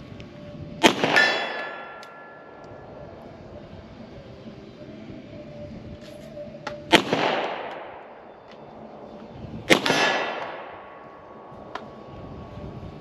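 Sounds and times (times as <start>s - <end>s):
pistol shots: 0.8s - 2.6s, 6.9s - 8.2s, 9.7s - 11.4s.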